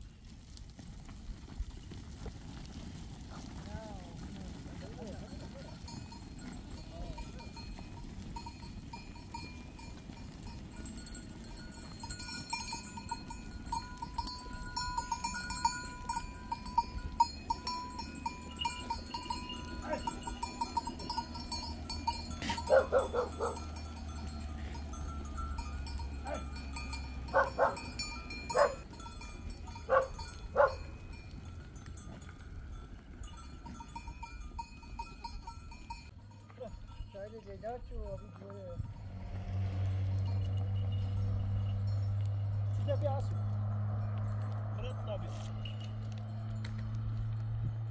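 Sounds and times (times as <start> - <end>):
hooves clattering on stony ground: 0.0 - 47.9
jingling bells: 4.2 - 47.9
goat bleats: 17.2 - 25.0.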